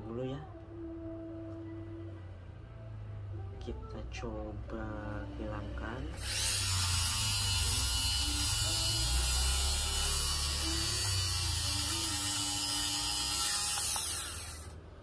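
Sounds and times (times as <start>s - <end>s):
fabric shaver whirring: 6.2s - 14.8s.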